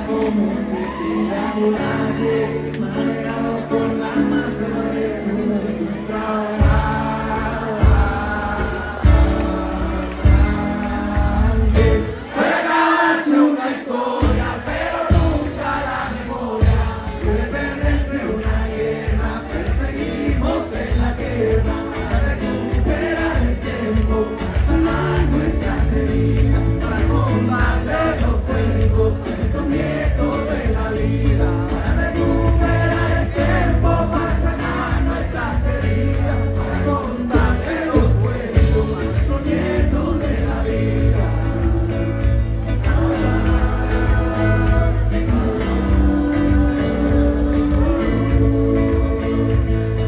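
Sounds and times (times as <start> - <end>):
bass guitar: 0.0 - 12.3, 14.2 - 50.0
electric guitar: 0.0 - 12.4, 16.6 - 50.0
live funk band playing: 0.0 - 13.0, 14.1 - 50.0
drums: 0.0 - 13.1, 13.9 - 50.0
person singing: 0.0 - 50.0.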